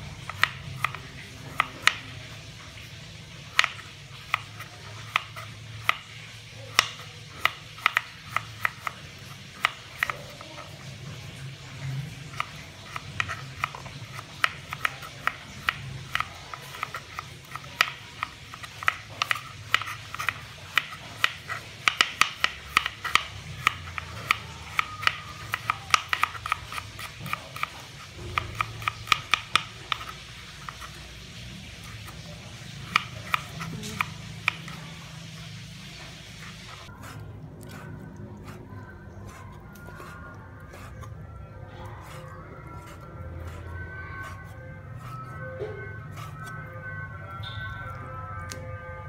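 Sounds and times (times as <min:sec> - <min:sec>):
knife tapping on cutting board: 0:00.3 - 0:01.0, 0:03.5 - 0:04.4, 0:06.7 - 0:08.9, 0:18.7 - 0:26.6.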